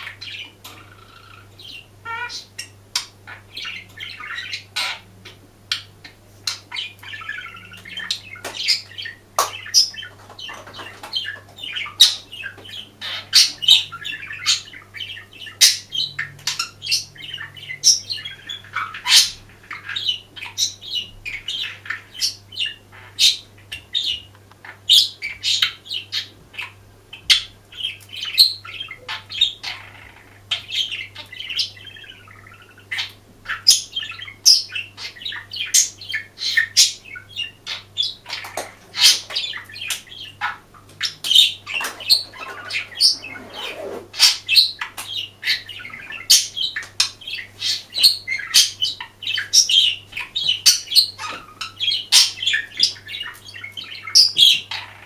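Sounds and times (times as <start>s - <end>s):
budgerigar warbling: 24.9s - 49.9s.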